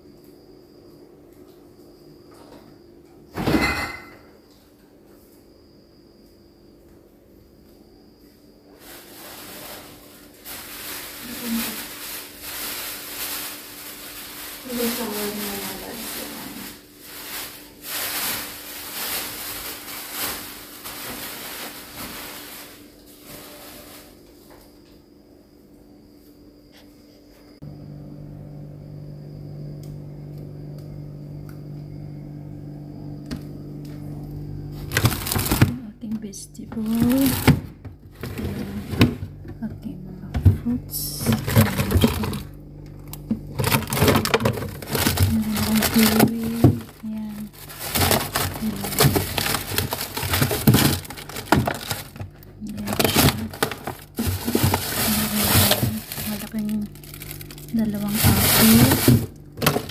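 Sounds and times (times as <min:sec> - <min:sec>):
low machine hum: 0:00.0 - 0:59.9
plastic bags rustling and crinkling: 0:08.7 - 0:24.6, 0:34.8 - 0:39.6, 0:40.3 - 0:59.9.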